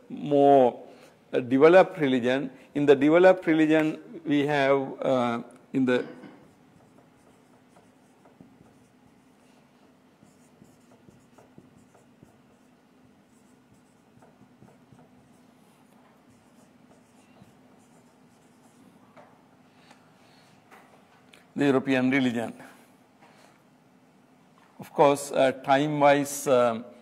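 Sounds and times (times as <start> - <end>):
steady low hum: 0.0 - 25.7
marker squeaking on whiteboard: 6.4 - 19.2.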